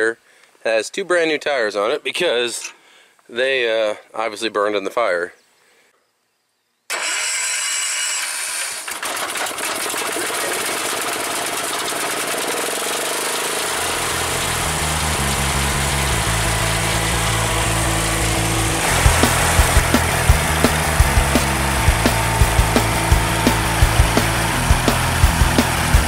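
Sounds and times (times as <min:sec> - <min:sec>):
garden tractor engine starting: 0:06.9 - 0:26.0.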